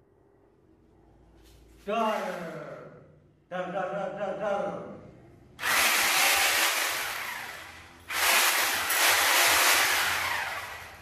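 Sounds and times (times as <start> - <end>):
angle grinder whirring: 5.6 - 11.0.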